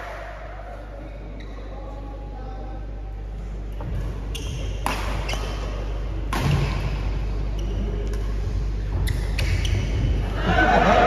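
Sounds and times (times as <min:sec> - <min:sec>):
hum and murmur of indoor hall: 0:00.0 - 0:11.0
rackets striking shuttlecock: 0:04.4 - 0:07.1, 0:08.0 - 0:10.0.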